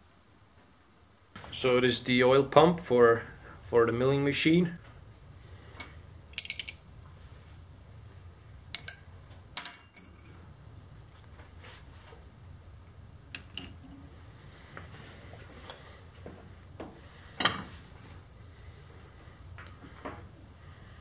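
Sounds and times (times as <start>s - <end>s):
steel parts clinking: 5.6s - 6.8s, 8.8s - 10.5s, 13.3s - 13.9s.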